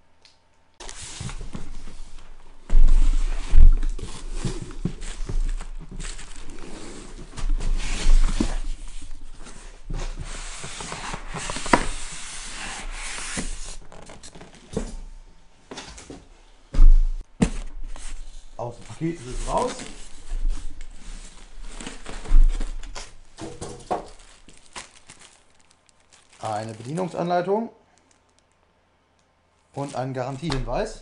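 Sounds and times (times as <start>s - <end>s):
cardboard rubbing and scraping: 2.8s - 14.5s, 19.0s - 23.0s.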